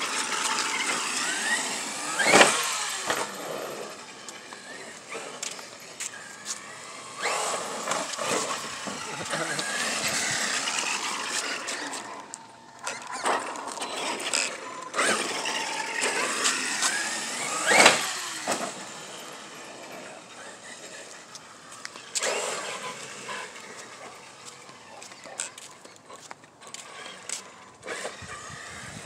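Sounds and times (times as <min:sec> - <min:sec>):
electric motor whining: 0:00.0 - 0:26.0, 0:26.7 - 0:29.0
tyres scrubbing on concrete: 0:00.0 - 0:28.2.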